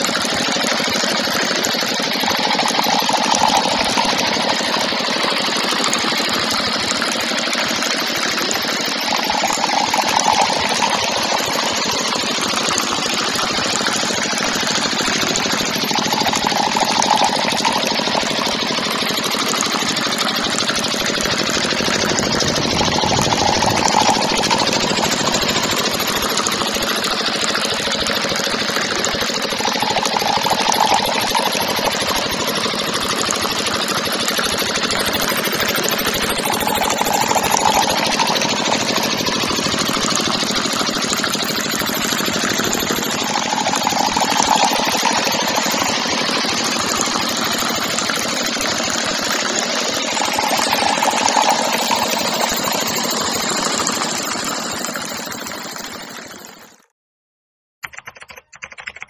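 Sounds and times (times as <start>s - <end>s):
small water pump engine clattering: 0.0s - 56.8s.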